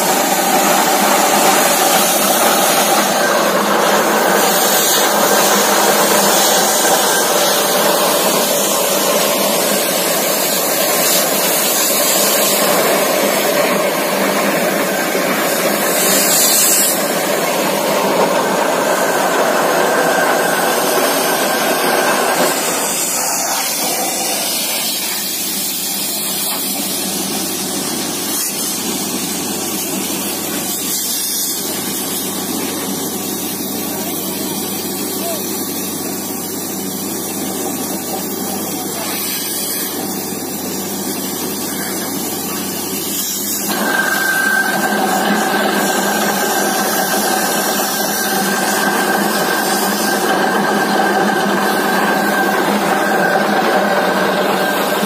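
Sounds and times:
air and water rushing: 0.0 - 26.0
drilling rig engine and compressor: 0.0 - 55.0.

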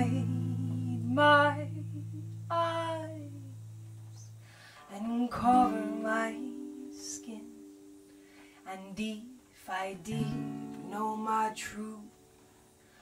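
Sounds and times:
woman singing long notes: 0.0 - 3.6, 4.8 - 7.7, 8.6 - 12.2
acoustic guitar chords: 0.0 - 13.0.

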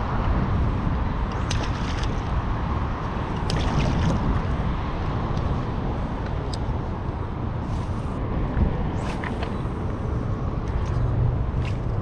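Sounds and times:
wind buffeting microphone: 0.0 - 12.0
river water lapping: 1.3 - 4.8, 9.0 - 12.0.

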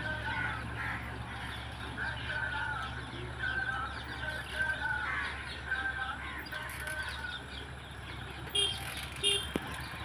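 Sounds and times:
distant tractor engine drone: 0.0 - 10.0.

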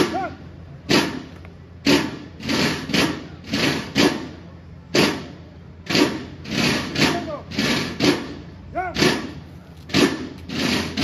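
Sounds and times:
sharp percussive hits: 0.9 - 11.0.

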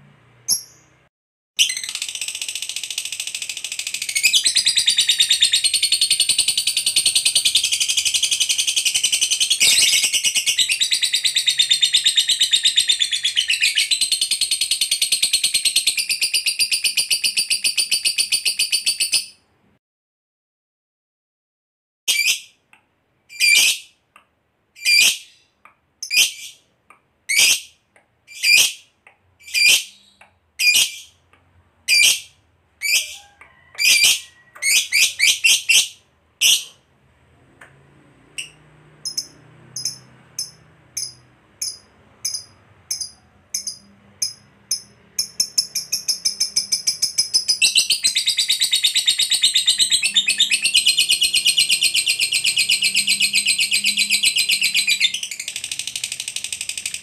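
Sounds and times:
lovebird shrieking and trilling: 31.9 - 36.7.

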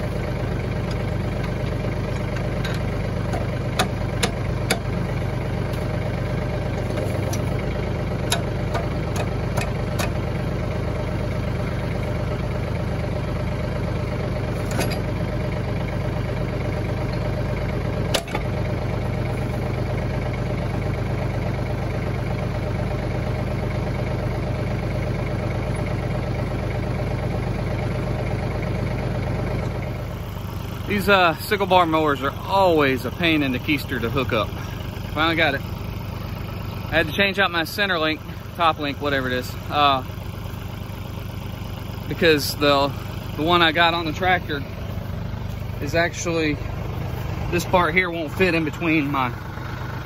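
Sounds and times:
tractor engine idling: 0.0 - 50.0
metal clinks and knocks: 0.9 - 4.9, 14.6 - 15.2.

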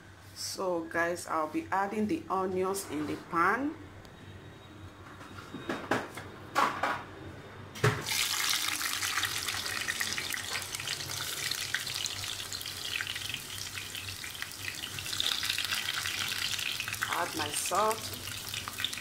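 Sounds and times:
onions sizzling in hot oil: 8.0 - 19.0.

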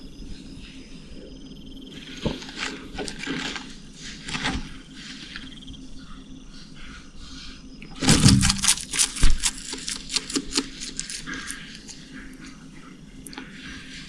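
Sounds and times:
lizard crunching insect: 2.1 - 5.4, 7.9 - 12.5.

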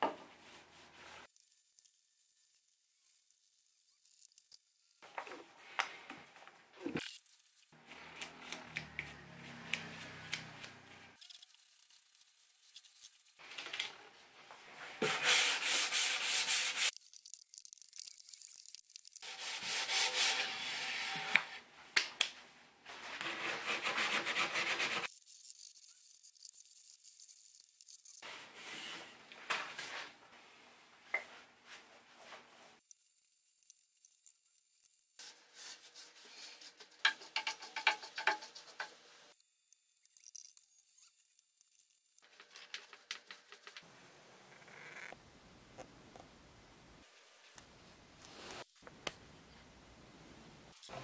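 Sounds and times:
sandpaper rubbing on wood: 15.0 - 16.9, 19.2 - 21.3, 23.2 - 27.5.

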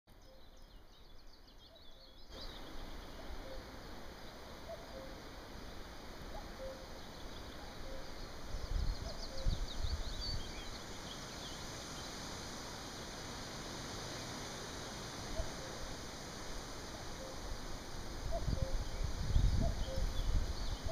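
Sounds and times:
small songbirds twittering: 0.1 - 13.2, 16.8 - 20.9
cuckoo calling: 3.2 - 3.8, 4.6 - 5.2, 6.3 - 7.0, 7.6 - 8.2, 15.4 - 15.8, 17.2 - 17.5, 18.3 - 19.0, 19.6 - 20.9.

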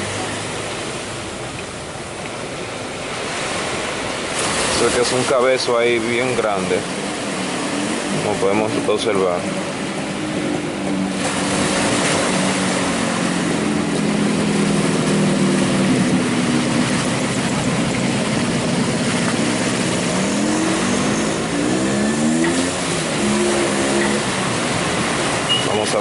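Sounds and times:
surf: 0.0 - 26.0
wind: 0.0 - 26.0
engine running and revving: 6.0 - 26.0.

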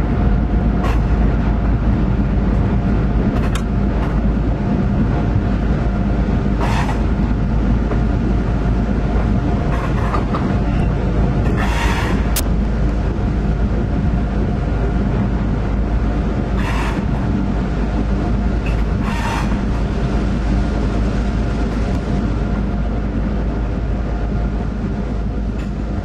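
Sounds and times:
diesel locomotive engine drone: 0.0 - 26.0.

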